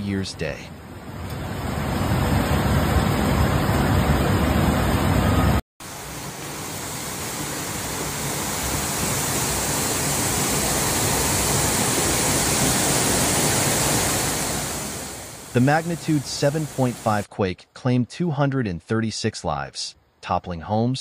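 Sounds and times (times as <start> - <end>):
flood torrent roaring: 1.6 - 17.3.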